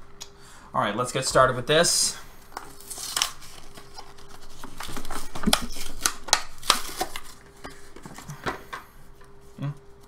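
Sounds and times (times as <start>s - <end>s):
plastic packaging tearing: 2.7s - 7.4s.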